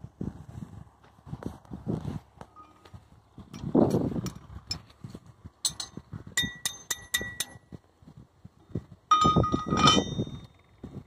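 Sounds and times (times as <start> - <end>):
metal clank with lingering ring: 5.7 - 7.6, 9.1 - 10.5
metal parts clinking: 9.1 - 10.6.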